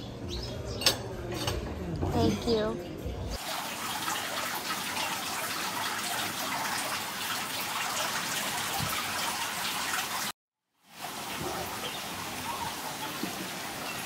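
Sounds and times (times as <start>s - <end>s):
running splashing water: 3.4s - 14.0s.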